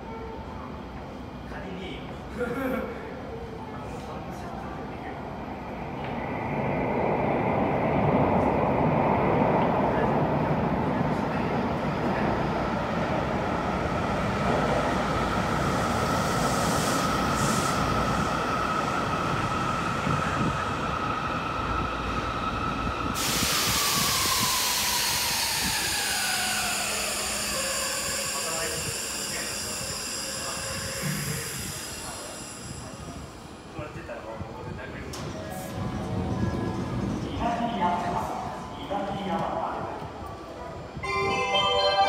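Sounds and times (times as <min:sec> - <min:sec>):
train running rumble and whine: 0:00.0 - 0:42.0
falling whining tones: 0:23.8 - 0:33.6.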